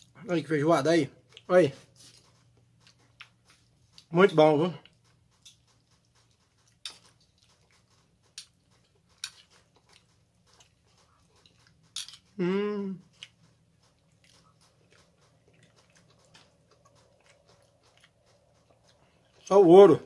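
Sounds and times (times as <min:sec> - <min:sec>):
faint chewing: 0:01.1 - 0:20.0
person humming mmm: 0:12.3 - 0:13.1.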